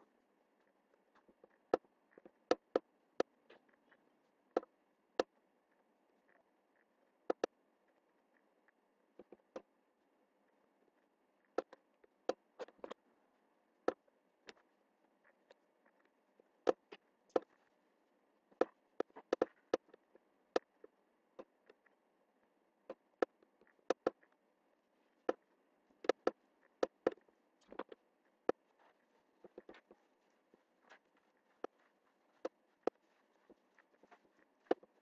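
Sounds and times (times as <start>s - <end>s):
faint steady hiss: 0.0s - 35.0s.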